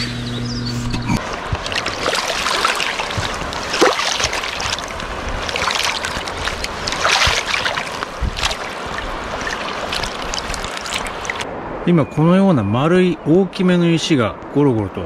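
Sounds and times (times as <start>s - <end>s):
boots splashing through water: 1.2s - 11.4s
rushing river water: 1.2s - 11.7s.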